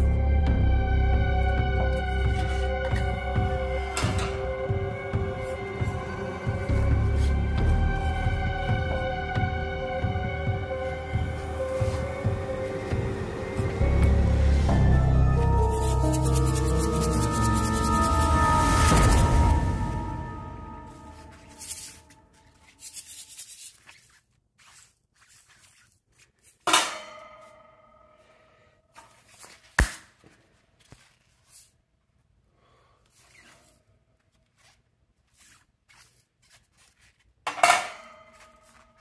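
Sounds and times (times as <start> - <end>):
ringing metallic clang: 3.9 - 4.5, 26.7 - 28.5
light scraping and rubbing on metal: 21.1 - 27.5, 33.1 - 39.0.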